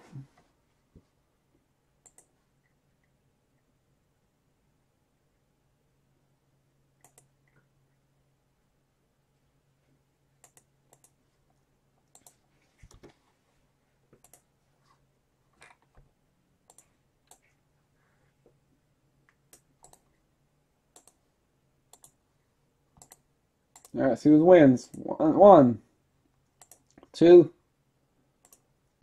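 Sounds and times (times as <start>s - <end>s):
faint low hum: 0.0s - 29.0s
mouse and keyboard clicking: 2.0s - 2.3s, 7.0s - 7.3s, 12.1s - 13.1s, 16.7s - 17.5s, 19.5s - 20.1s, 21.0s - 21.2s, 21.9s - 22.2s, 23.0s - 23.2s, 23.8s - 24.0s, 26.6s - 27.1s.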